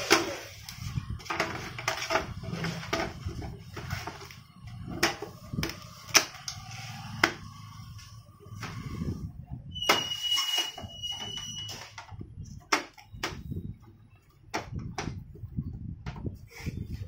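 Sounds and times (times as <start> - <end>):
plastic covers clicking and snapping: 0.0 - 7.4.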